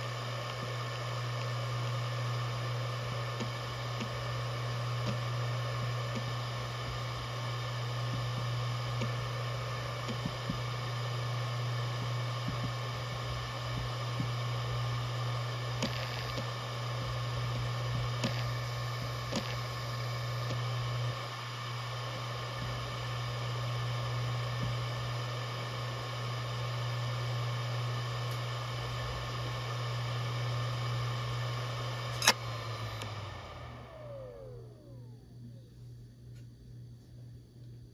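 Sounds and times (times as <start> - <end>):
hard drive spinning hum: 0.0 - 37.9
hard drive seek ticks: 3.2 - 21.1.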